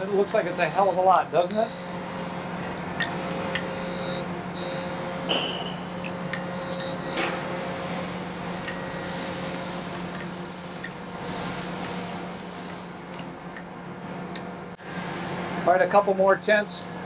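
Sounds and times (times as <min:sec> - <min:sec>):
grinding wheel hiss and whine: 0:00.0 - 0:13.2
motor hum: 0:00.0 - 0:14.8.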